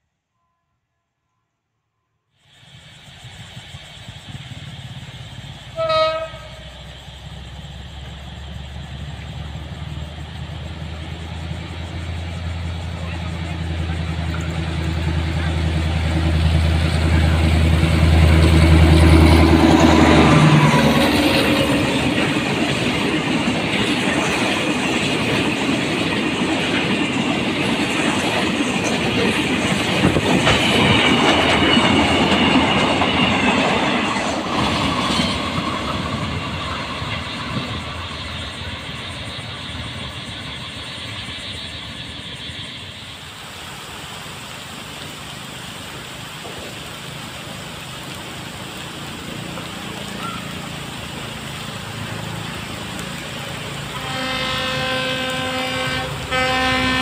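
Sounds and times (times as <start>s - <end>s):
rain hissing: 2.4s - 57.0s
train wheels clattering: 4.2s - 43.1s.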